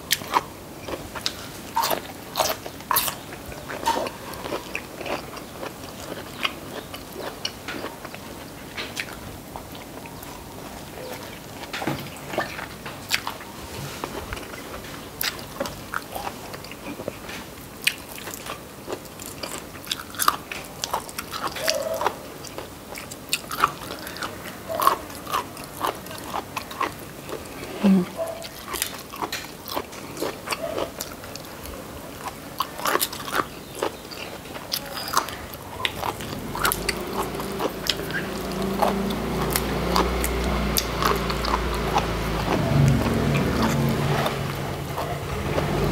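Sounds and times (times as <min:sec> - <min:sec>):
chewing and biting: 0:00.1 - 0:10.4, 0:11.0 - 0:45.9
low motor drone: 0:36.1 - 0:45.9.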